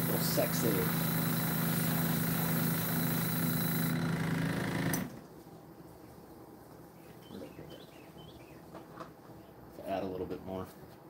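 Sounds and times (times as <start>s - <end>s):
airbrush hissing: 0.0s - 3.9s
compressor humming: 0.0s - 5.4s.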